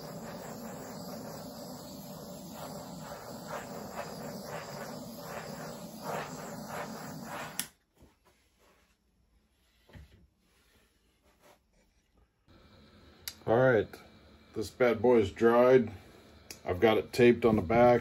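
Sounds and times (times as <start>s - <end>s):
butane torch hissing: 0.0s - 7.8s, 12.5s - 18.0s
torch shut-off click: 0.0s - 7.8s, 12.5s - 18.0s.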